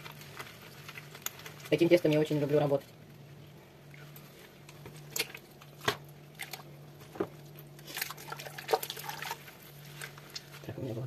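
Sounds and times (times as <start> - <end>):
low steady hum: 0.0 - 11.0
wet cheese squelching: 3.0 - 10.7.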